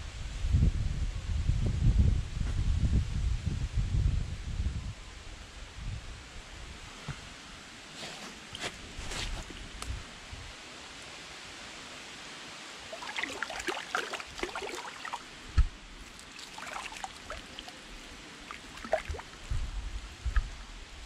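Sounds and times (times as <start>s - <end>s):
muddy water sloshing: 12.9s - 19.5s.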